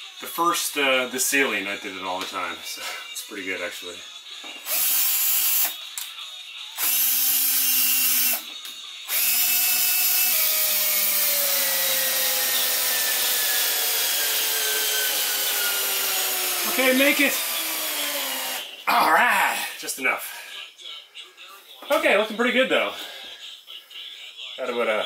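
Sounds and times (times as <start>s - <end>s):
cordless drill driving screw: 4.6s - 5.8s, 6.8s - 8.4s, 9.1s - 18.7s.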